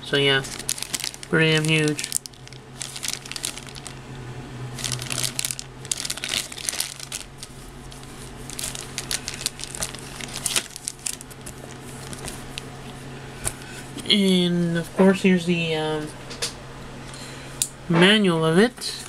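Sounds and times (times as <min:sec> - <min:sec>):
plastic bags crinkling: 0:00.1 - 0:04.0, 0:04.8 - 0:14.1.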